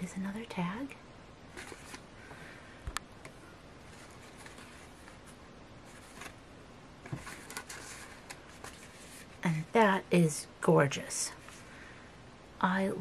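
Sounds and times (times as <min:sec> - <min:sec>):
paper rustling: 0:01.5 - 0:02.3, 0:03.8 - 0:06.4, 0:07.0 - 0:09.4.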